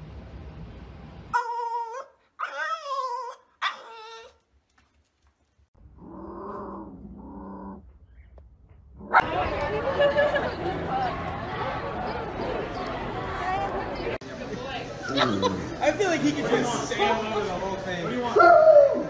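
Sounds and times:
dog whining: 1.4 - 4.4
dog growling grumbles: 5.9 - 7.8.

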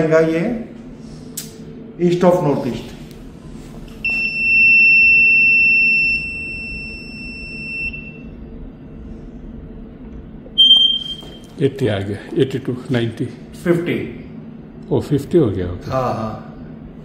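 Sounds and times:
high-pitched electronic beep: 10.6 - 11.5.

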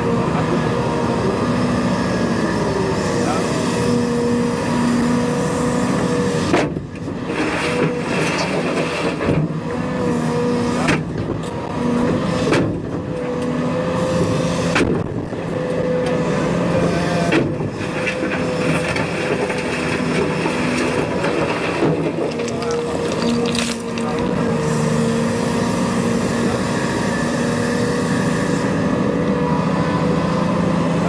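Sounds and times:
excavator engine hum: 0.0 - 31.0.

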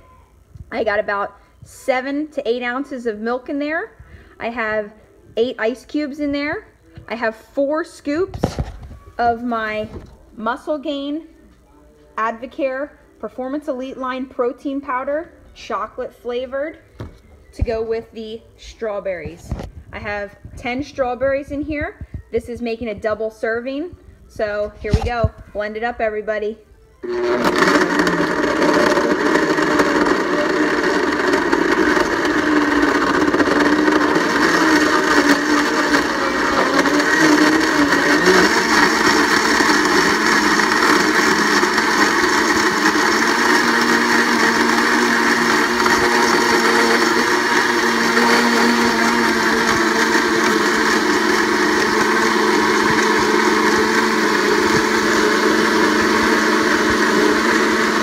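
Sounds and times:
blender motor running: 27.0 - 58.0.

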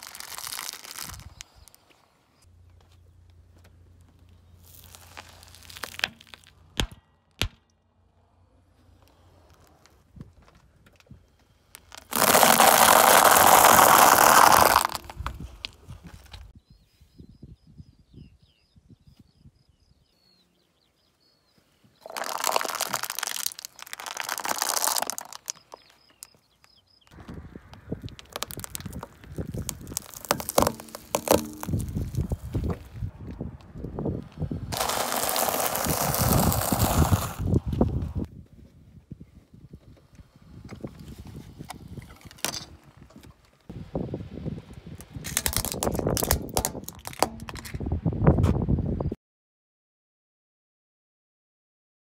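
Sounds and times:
tyre crunching over pods: 0.0 - 2.0, 3.6 - 6.8, 11.7 - 16.4, 22.0 - 26.4, 27.9 - 33.1, 34.7 - 38.2
faint bird chirps: 16.6 - 22.1
pods bursting with pops: 22.0 - 26.4, 28.0 - 32.5.

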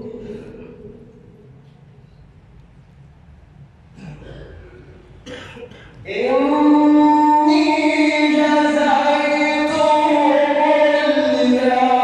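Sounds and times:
man chanting recitation: 6.0 - 12.0.

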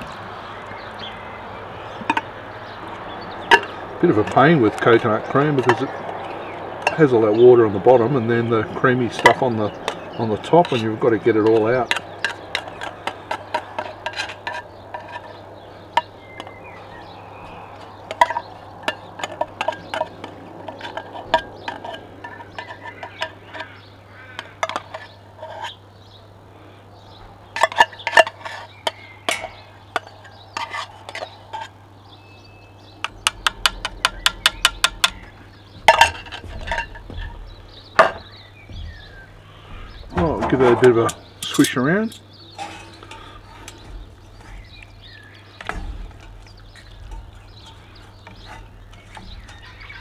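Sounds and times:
metal spoon scraping tin can: 9.9 - 15.4, 27.6 - 31.8, 42.5 - 50.0.

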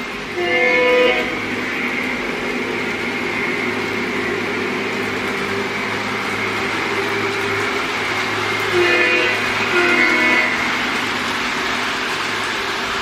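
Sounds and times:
model train running on track: 0.0 - 13.0
train horn blast: 0.3 - 3.9, 6.1 - 11.4.

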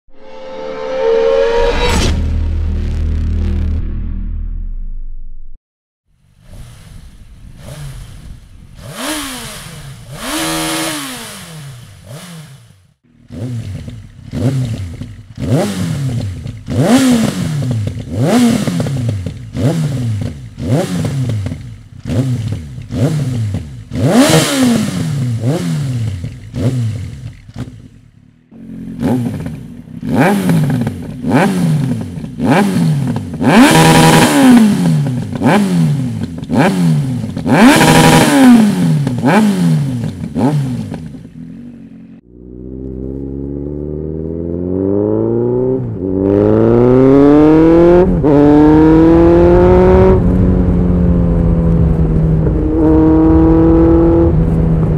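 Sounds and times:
motorcycle engine revving: 6.2 - 54.9.

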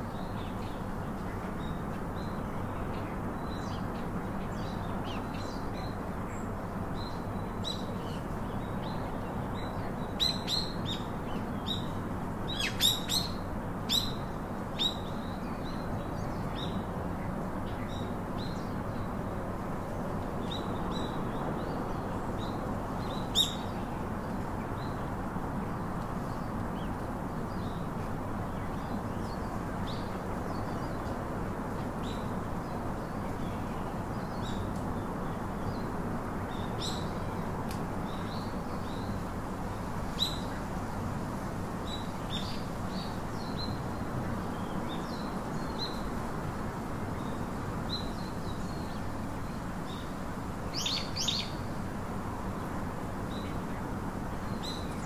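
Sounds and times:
small birds chirping: 0.0 - 41.2, 41.8 - 55.0.

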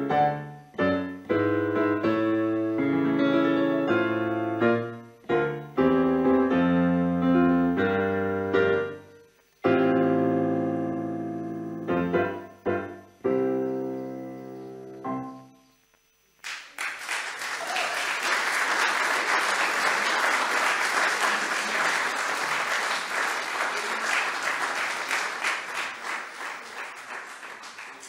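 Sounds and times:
electric piano chord: 0.0 - 15.5
crowd applauding: 16.4 - 28.0.

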